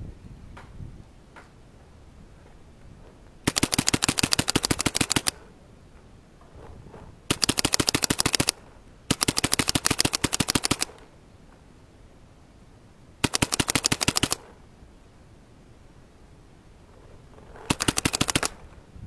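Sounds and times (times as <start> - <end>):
paintball marker firing rapidly: 3.4 - 5.5, 7.3 - 11.1, 13.2 - 14.6, 17.6 - 18.6.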